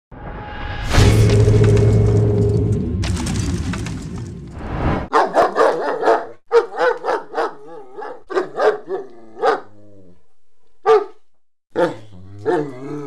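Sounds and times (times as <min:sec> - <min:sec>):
dog barking: 0:05.1 - 0:09.7, 0:10.8 - 0:11.2, 0:11.8 - 0:12.7.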